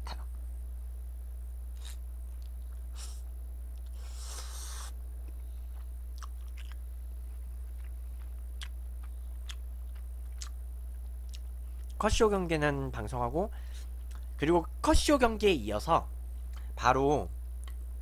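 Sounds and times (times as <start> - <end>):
steady low hum: 0.0 - 18.0
noodle slurp: 1.8 - 2.0
wet mouth smacks and chewing: 5.8 - 6.8, 7.7 - 12.0.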